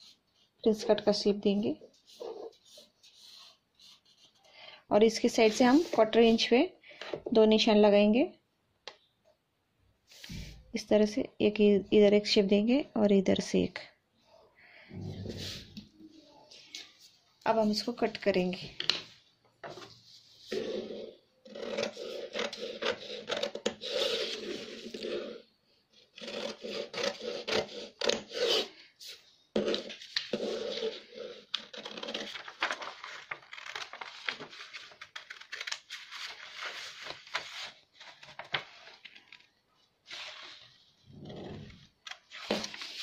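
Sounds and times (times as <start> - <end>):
paper rustling: 29.0 - 41.0, 42.0 - 43.0.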